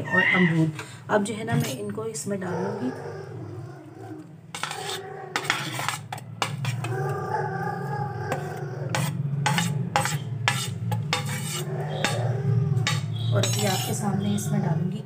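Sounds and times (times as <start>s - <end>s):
metal spoon scraping ceramic plate: 4.5s - 7.1s, 8.3s - 14.6s.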